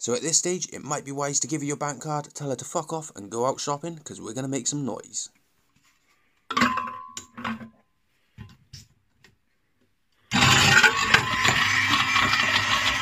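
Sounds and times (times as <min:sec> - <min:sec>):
blender motor running: 0:10.3 - 0:13.0
plastic scraps clattering in blender: 0:10.3 - 0:13.0.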